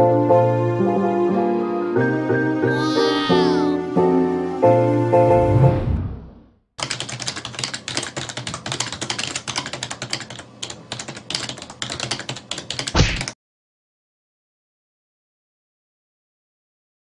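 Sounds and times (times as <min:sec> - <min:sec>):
keyboard typing clicks: 0:06.8 - 0:13.4.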